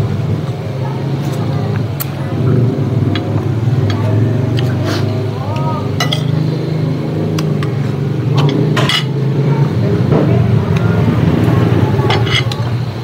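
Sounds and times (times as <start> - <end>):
steady low hum: 0.0 - 13.0
spoons clinking against plates: 6.0 - 6.5, 8.4 - 9.2, 12.1 - 12.6.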